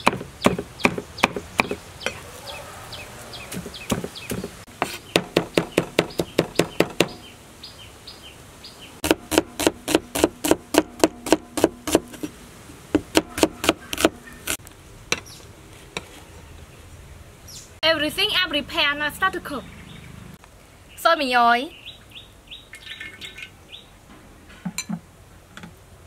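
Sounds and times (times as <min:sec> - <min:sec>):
knife chopping on wooden board: 0:00.0 - 0:02.2, 0:03.5 - 0:07.2, 0:09.0 - 0:12.3, 0:13.0 - 0:14.2.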